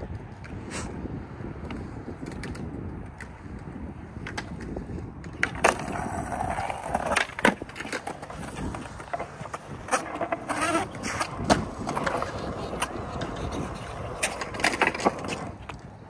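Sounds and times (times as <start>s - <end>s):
skateboard wheels rolling on concrete: 0.0s - 16.0s
skateboard grinding scrape: 0.5s - 2.5s, 4.8s - 16.0s
skateboard taps and clacks: 1.6s - 16.0s
skateboard clacking on ledge: 4.2s - 16.0s.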